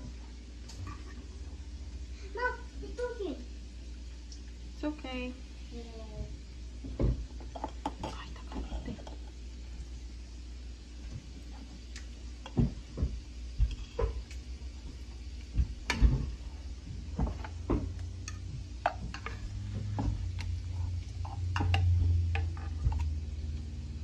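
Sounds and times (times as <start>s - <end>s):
low hum: 13.7s - 24.0s.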